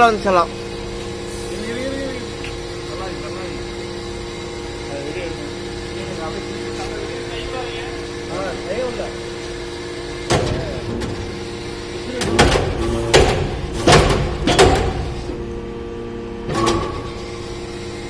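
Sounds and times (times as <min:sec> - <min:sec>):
hydraulic press humming: 0:00.0 - 0:18.0
metal knocks and clunks: 0:12.2 - 0:15.2.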